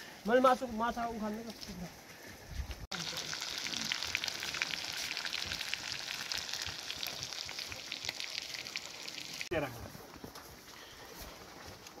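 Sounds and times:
fish sizzling in hot oil: 0:02.9 - 0:09.5.

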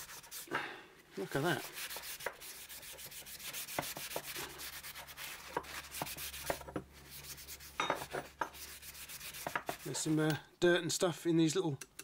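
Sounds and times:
rag rubbing on metal: 0:01.3 - 0:10.3.

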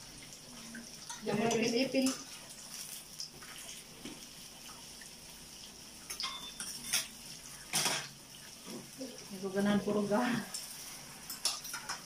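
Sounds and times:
pork sizzling on grill pan: 0:00.0 - 0:12.0.

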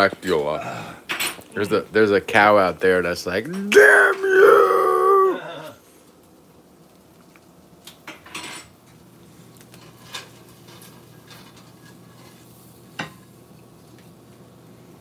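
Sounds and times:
fork scraping and clinking on skillet: 0:09.7 - 0:13.2.

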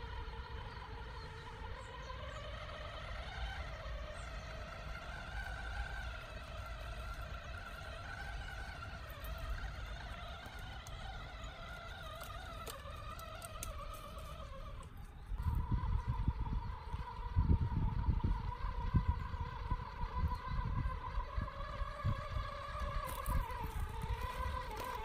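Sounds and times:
toy truck electric motor whining: 0:00.0 - 0:25.0
light clicks and crackles: 0:09.1 - 0:15.1.

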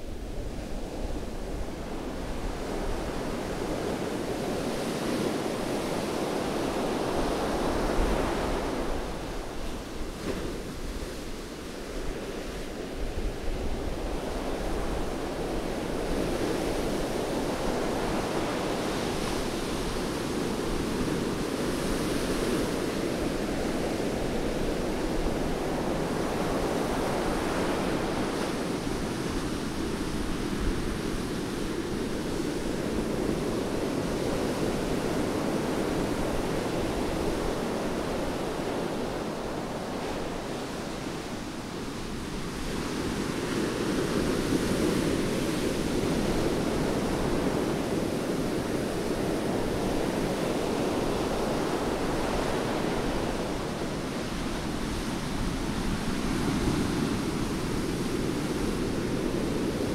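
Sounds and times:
waves breaking on beach: 0:00.0 - 0:59.9.

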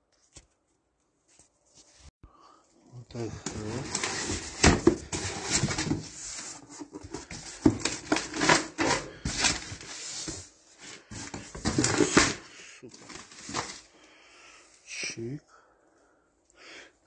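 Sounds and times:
plastic wrap crinkling: 0:07.2 - 0:14.0.

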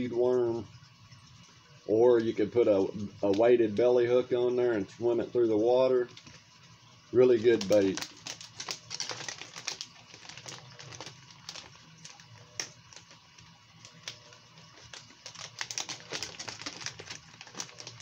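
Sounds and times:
low steady hum: 0:00.0 - 0:18.0
plastic packaging crinkling: 0:07.3 - 0:18.0.

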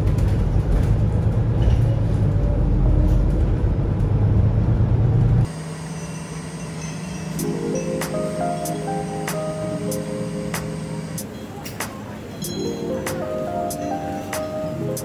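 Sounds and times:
bus engine rumble: 0:00.0 - 0:15.0
music: 0:06.9 - 0:15.0.

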